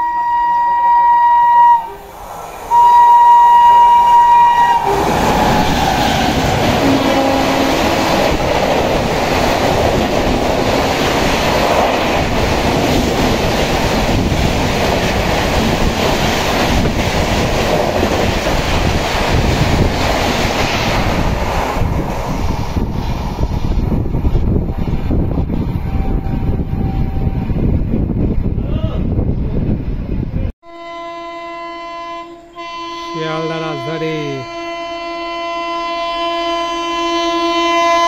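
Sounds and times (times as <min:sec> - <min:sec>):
locomotive horn blast: 0:00.0 - 0:02.1, 0:02.7 - 0:05.6, 0:06.6 - 0:08.4, 0:25.8 - 0:27.6, 0:30.6 - 0:38.0
rush of passing train coaches: 0:00.0 - 0:31.0.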